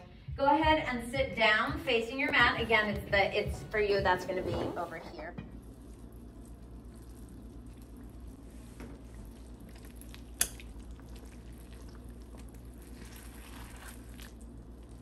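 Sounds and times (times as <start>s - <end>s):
low steady hum: 0.0s - 15.0s
fork squishing into pot roast: 5.7s - 15.0s.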